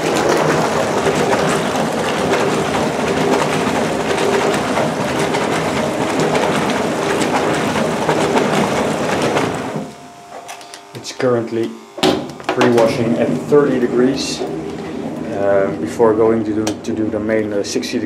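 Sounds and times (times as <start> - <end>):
water sloshing and splashing: 0.0 - 10.0
washing machine drum tumbling: 0.0 - 18.0.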